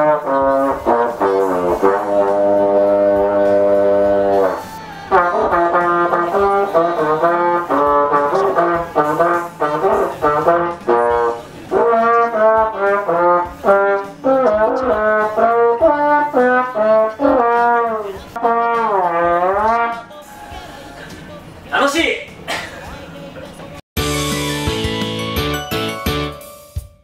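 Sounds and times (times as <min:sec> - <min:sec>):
plastic trombone melody: 0:00.0 - 0:20.2.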